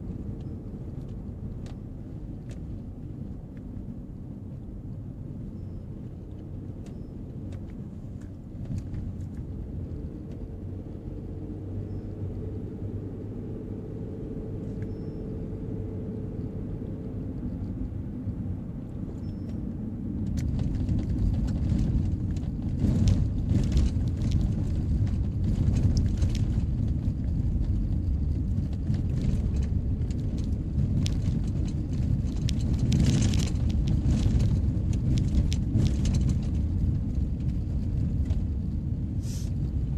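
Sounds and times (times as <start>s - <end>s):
car engine and tyre noise: 0.0s - 39.9s
gravel crackling under tyres: 0.0s - 39.9s.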